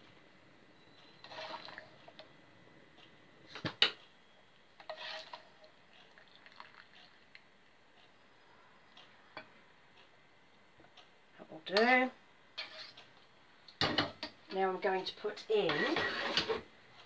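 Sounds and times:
water sloshing and dripping: 1.2 - 2.1.

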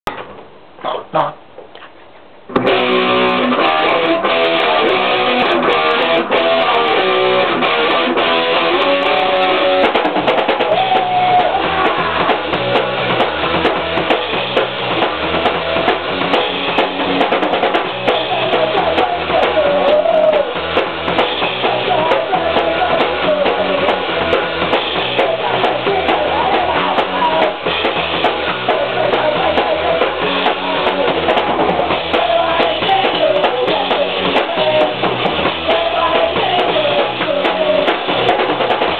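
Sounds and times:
drum kit: 2.5 - 38.9
electric guitar: 2.5 - 38.9
person singing into a microphone: 10.6 - 12.6, 18.1 - 20.6, 21.5 - 24.5, 25.1 - 27.7, 28.5 - 38.4.

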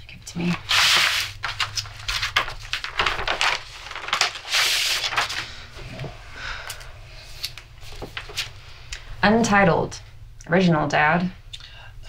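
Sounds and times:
paper rustling and sliding: 0.5 - 6.2, 7.2 - 8.6.

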